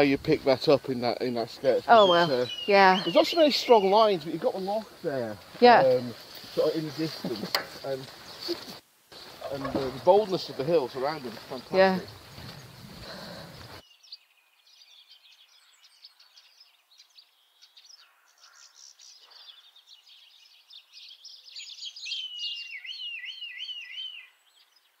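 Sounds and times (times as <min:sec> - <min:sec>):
songbirds singing: 0:00.0 - 0:25.0
bird whistling looping phrase: 0:01.9 - 0:04.2.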